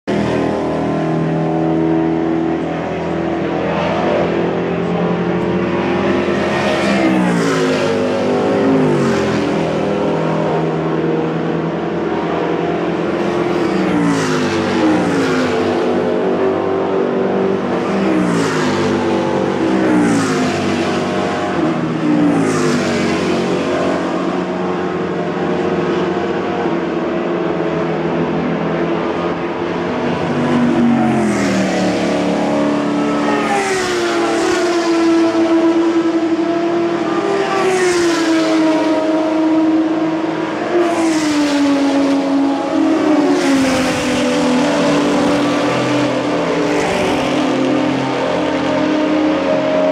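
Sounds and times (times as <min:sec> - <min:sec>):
race cars passing: 0:00.0 - 0:49.9.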